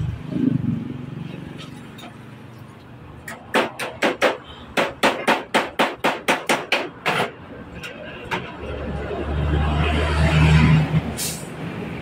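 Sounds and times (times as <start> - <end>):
hammer tapping on metal: 3.2 - 7.3.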